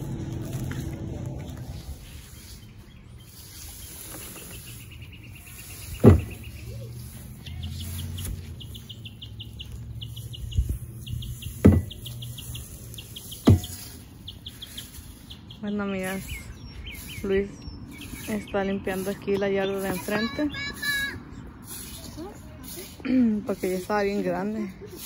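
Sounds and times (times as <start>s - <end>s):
steady low rumble: 0.0s - 4.0s
grass being scooped and tipped: 0.0s - 25.0s
bird trilling high chirps: 2.0s - 22.2s.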